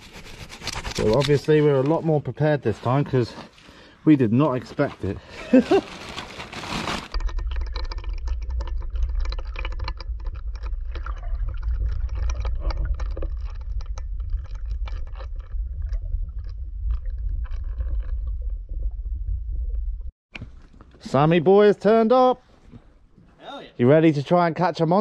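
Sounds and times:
crackling clicks underwater: 7.1 - 18.5
muffled underwater rumble: 7.2 - 20.1.

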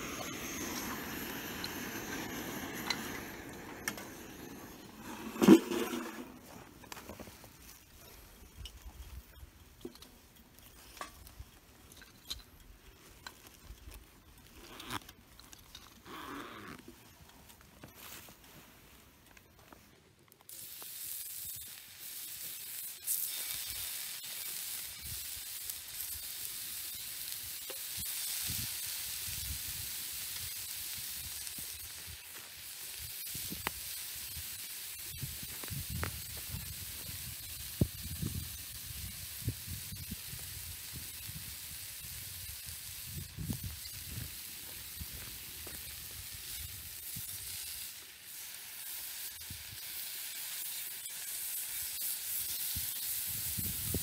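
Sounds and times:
bacon sizzling on a griddle: 0.0 - 5.2, 20.4 - 54.0.

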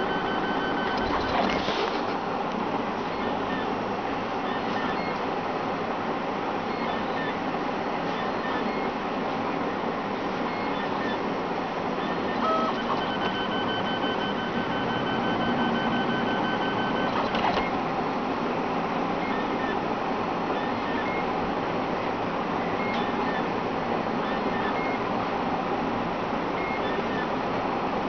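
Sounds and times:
printer stepper motors whirring: 0.0 - 2.2, 4.4 - 5.2, 6.6 - 17.9, 22.6 - 23.6, 26.6 - 27.4.

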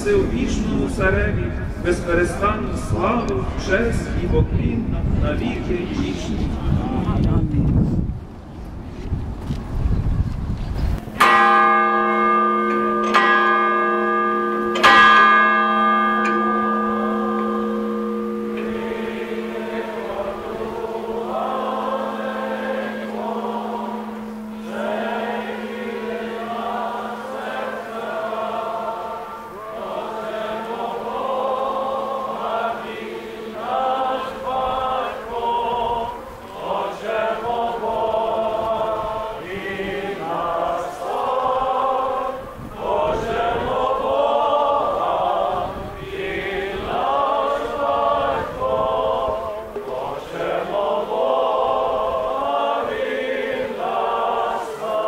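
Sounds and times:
group singing a chant: 18.4 - 55.0.

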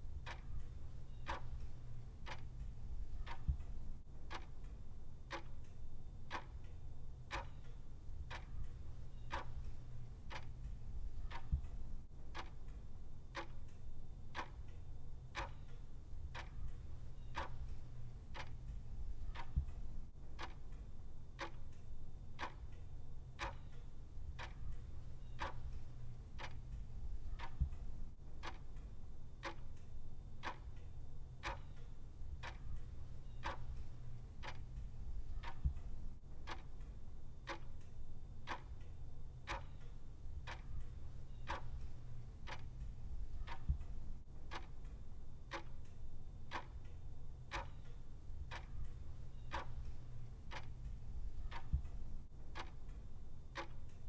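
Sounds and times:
clock ticking: 0.0 - 54.0
low background rumble: 0.0 - 54.0.

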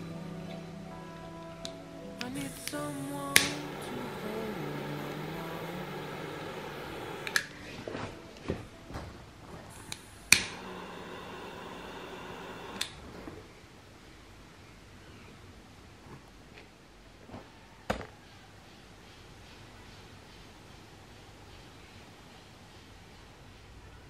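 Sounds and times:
lighter clicks: 2.6 - 3.8, 5.9 - 7.6.

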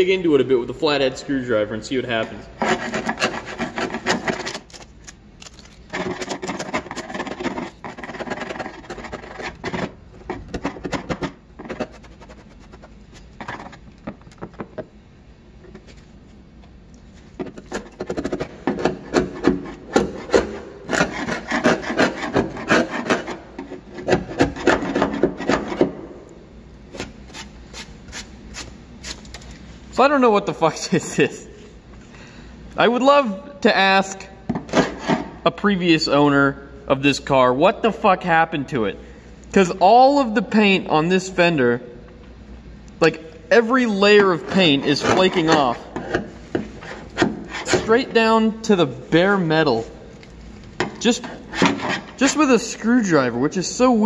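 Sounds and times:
screwdriver scraping paint off metal: 2.6 - 4.9.

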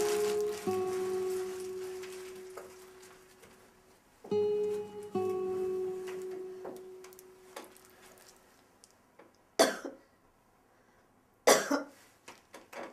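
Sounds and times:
plucked guitar note: 0.0 - 3.5, 4.3 - 7.8
man coughing: 11.5 - 11.9.

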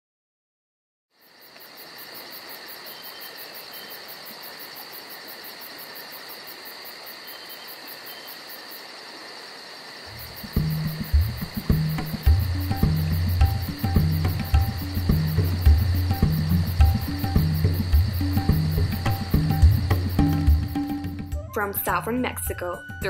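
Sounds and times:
insect chorus trilling: 1.2 - 23.0
low music: 10.2 - 23.0.

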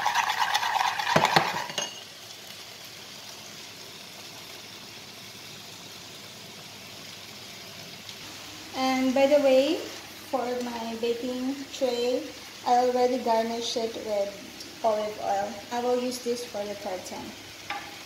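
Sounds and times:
onions sizzling in a pan: 0.0 - 18.0
spoon clinking against glass: 1.3 - 2.0.

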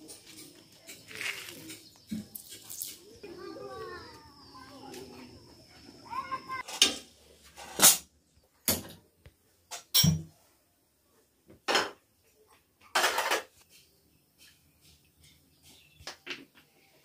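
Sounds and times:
pans and utensils clanking: 0.0 - 3.2, 6.6 - 8.1, 9.7 - 10.4, 12.9 - 16.0.

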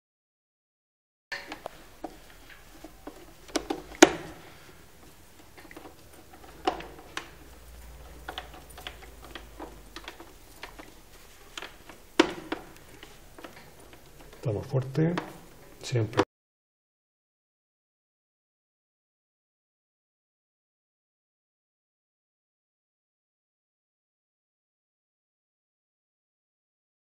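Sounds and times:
tools and wires clicking: 1.3 - 15.8.

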